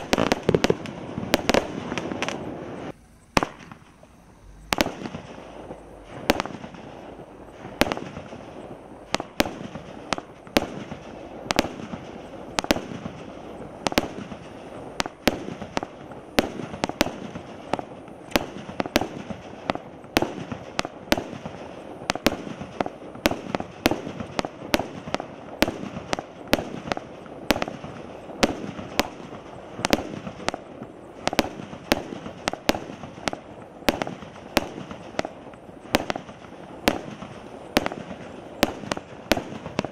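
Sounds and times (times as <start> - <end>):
continuous firework noise: 0.0 - 39.9
firework bangs: 0.0 - 39.9.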